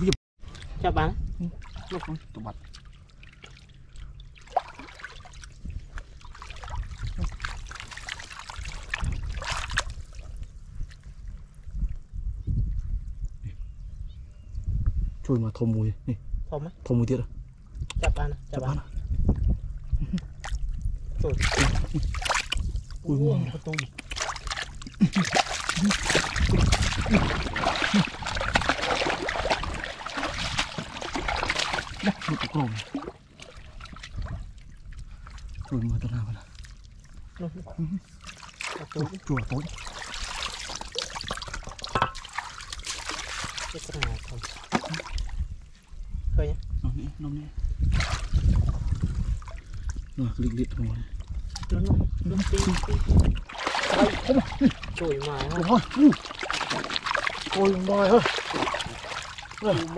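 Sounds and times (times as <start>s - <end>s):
stream running: 0.0s - 11.1s, 21.2s - 46.0s, 52.3s - 59.9s
water sloshing and splashing: 0.0s - 12.0s, 19.2s - 46.0s, 47.7s - 59.9s.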